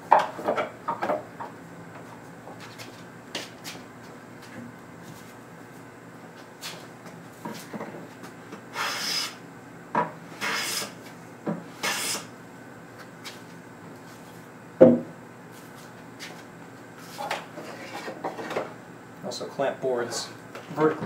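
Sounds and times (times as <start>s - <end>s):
hand plane cutting wood: 10.4s - 10.9s, 11.8s - 12.3s
loud wooden knock: 14.8s - 15.1s.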